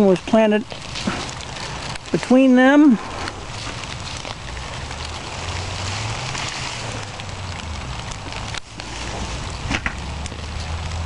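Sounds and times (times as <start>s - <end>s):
leaves rustling as plants are pulled: 0.0s - 11.0s
steady low rumble: 0.6s - 11.0s.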